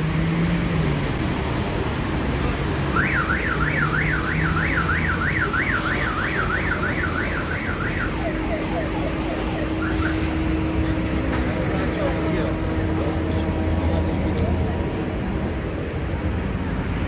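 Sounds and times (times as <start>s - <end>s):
car alarm siren warbling: 2.9s - 10.4s.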